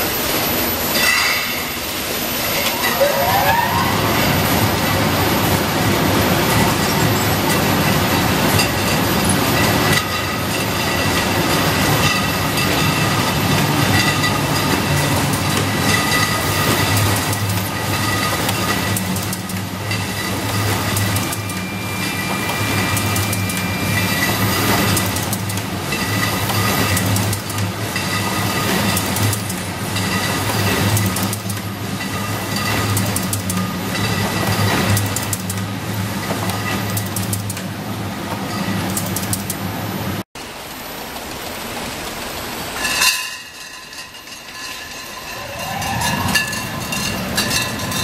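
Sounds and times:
conveyor machinery hum: 0.0s - 48.0s
bottles rattling and clattering: 7.6s - 21.4s, 42.8s - 48.0s.

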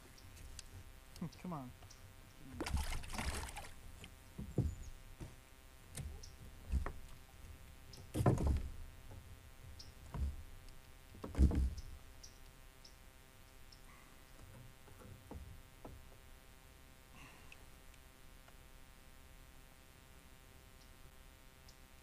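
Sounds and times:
hollow knocks against kayak hull: 4.3s - 7.1s, 8.0s - 9.2s, 10.0s - 10.4s, 11.2s - 11.8s.

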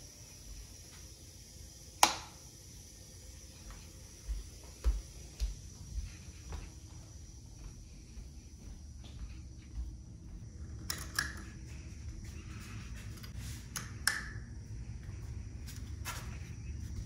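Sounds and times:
low steady hum: 0.0s - 17.0s
lamp switch clicking: 2.0s - 2.3s, 10.9s - 11.4s, 13.7s - 14.4s.

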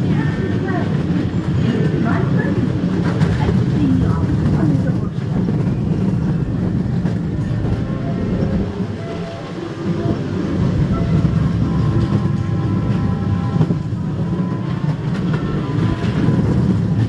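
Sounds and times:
wheels rumbling on rails: 0.0s - 17.0s.

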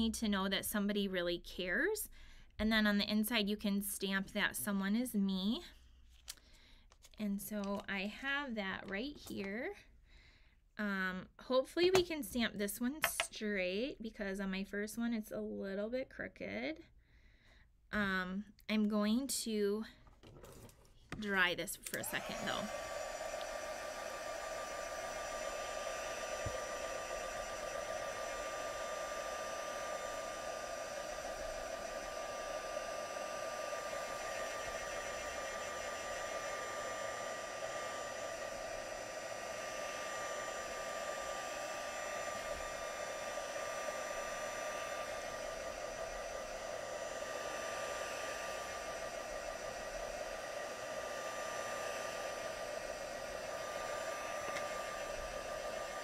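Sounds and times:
heat gun blowing air: 21.2s - 56.0s.

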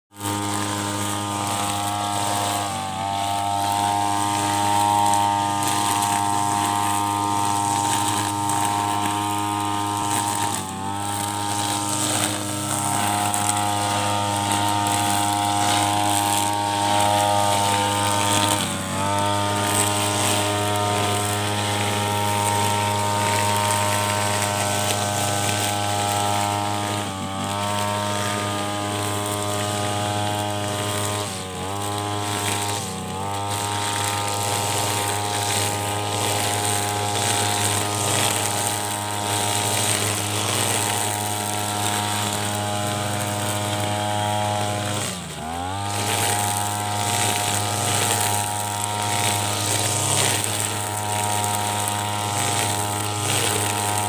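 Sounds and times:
brush cutter engine cutting grass: 0.0s - 54.0s.

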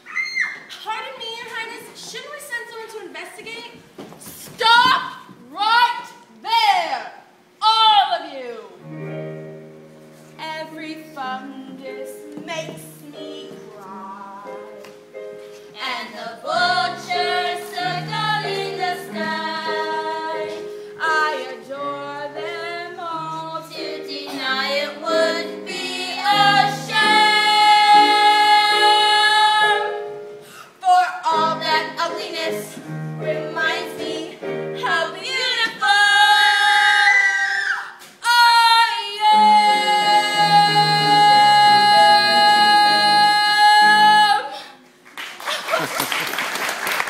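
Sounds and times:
girl singing: 15.8s - 29.9s, 30.8s - 44.7s.

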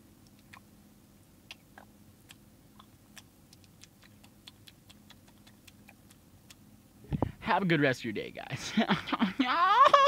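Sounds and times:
low steady hum: 0.0s - 10.0s
faint irregular small clicks: 1.5s - 6.6s.

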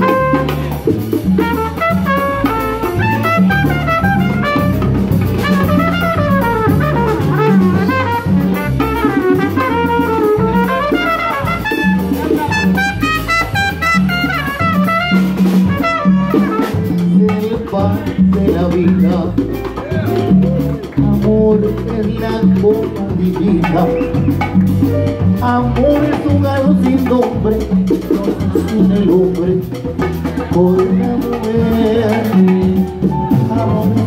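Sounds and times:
trumpet melody: 0.0s - 17.6s
salsa band playing: 0.0s - 34.0s.

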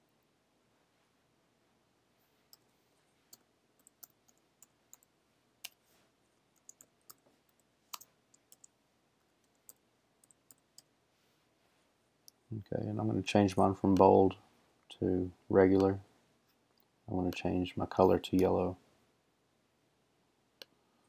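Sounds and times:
faint keyboard typing clicks: 3.3s - 5.8s, 6.6s - 8.8s, 9.4s - 10.9s.

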